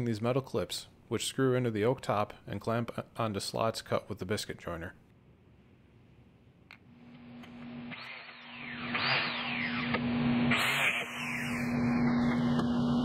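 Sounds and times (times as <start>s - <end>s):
biscuit joiner cutting wood: 7.9s - 13.0s.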